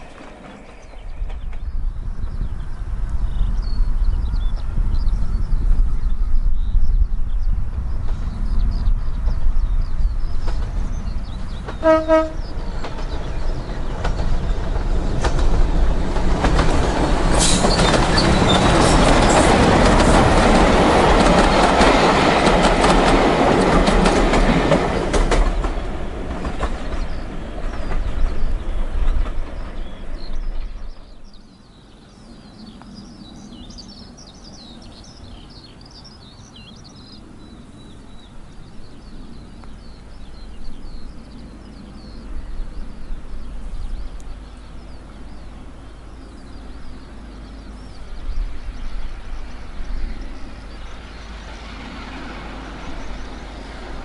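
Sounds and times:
birds chirping: 0:00.0 - 0:54.0
diesel train engine running past: 0:00.0 - 0:54.0
train wheels clacking over rail joints: 0:10.4 - 0:31.2
train horn blast: 0:11.8 - 0:12.5.

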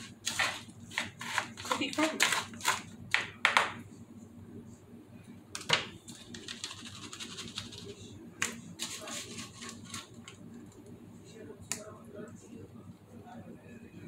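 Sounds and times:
knife scraping plastic bowl: 0:00.0 - 0:02.9.

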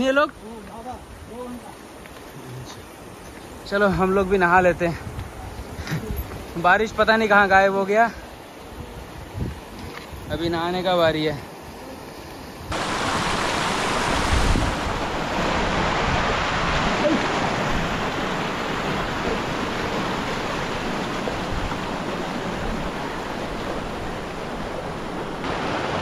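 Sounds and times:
river water rushing: 0:06.1 - 0:26.0.

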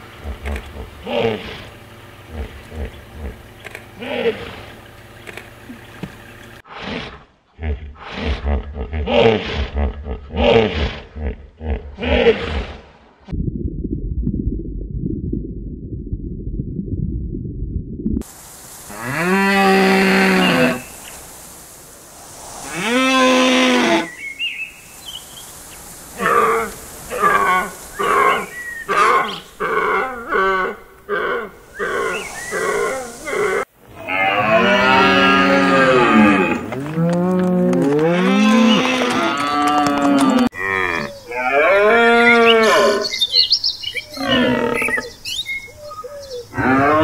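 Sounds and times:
low muffled rumble: 0:13.3 - 0:18.3.

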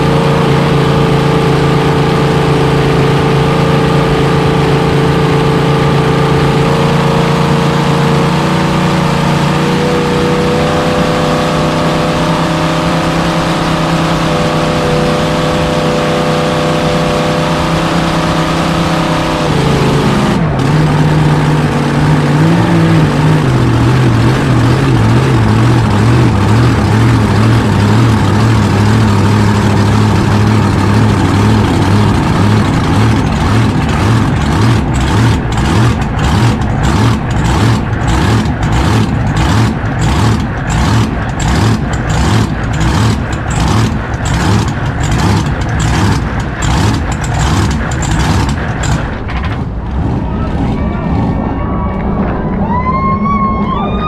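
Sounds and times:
boat engine running hard: 0:00.0 - 0:52.6.

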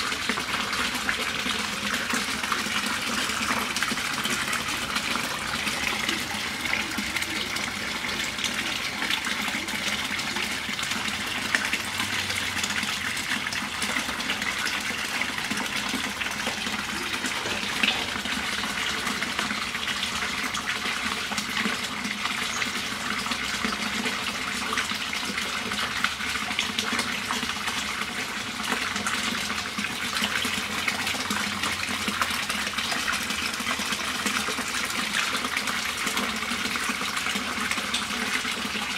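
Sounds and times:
running splashing water: 0:00.0 - 0:38.9.

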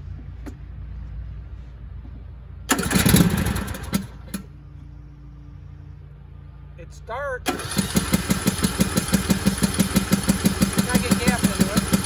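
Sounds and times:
engine cranking on starter: 0:02.7 - 0:04.5, 0:07.4 - 0:12.0.

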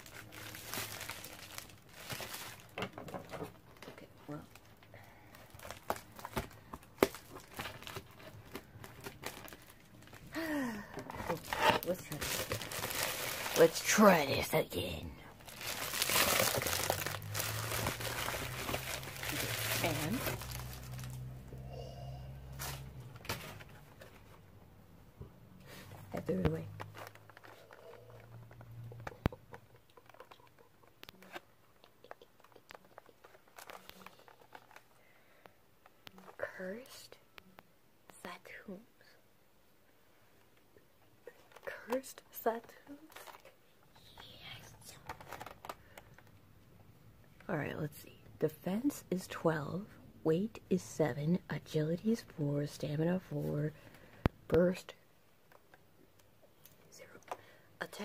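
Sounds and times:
toy packaging crinkling: 0:00.0 - 0:03.0, 0:03.8 - 0:10.4, 0:11.0 - 0:21.4, 0:26.4 - 0:35.0, 0:42.6 - 0:43.6, 0:44.2 - 0:46.4.

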